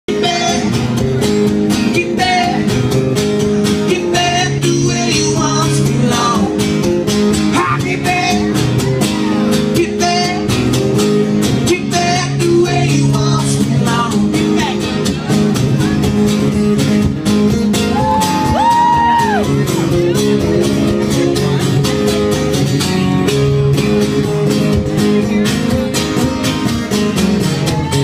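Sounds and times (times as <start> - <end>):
man singing: 0.0 - 10.8, 11.4 - 16.0
acoustic guitars strummed: 0.1 - 28.0.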